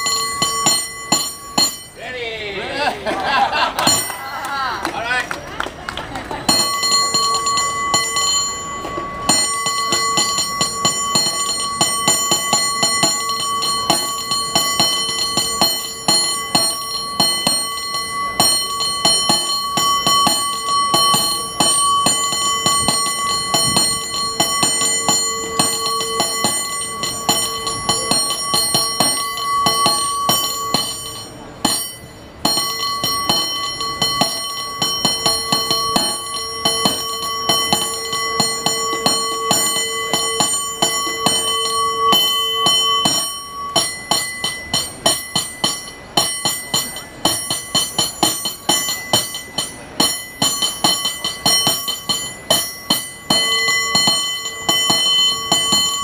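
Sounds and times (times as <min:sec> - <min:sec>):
cable car bell ringing: 0:00.0 - 0:56.0.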